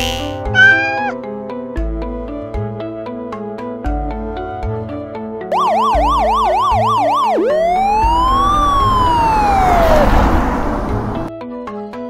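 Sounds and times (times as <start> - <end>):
cartoon siren warble: 0.6 - 1.2, 5.5 - 11.0
rushing noise: 7.5 - 11.3.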